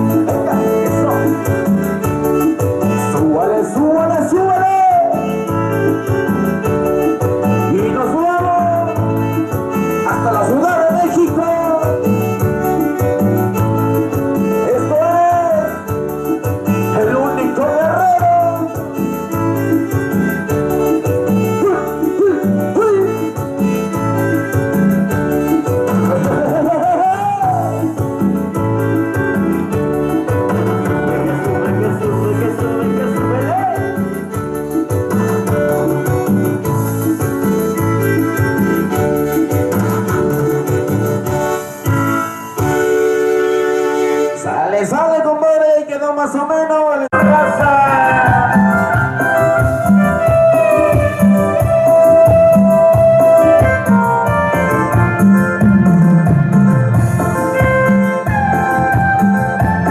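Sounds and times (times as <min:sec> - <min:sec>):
keyboard dance music over pa: 0:00.0 - 0:59.9
person singing: 0:21.5 - 0:23.6, 0:25.5 - 0:28.0, 0:30.1 - 0:34.1, 0:47.1 - 0:51.0.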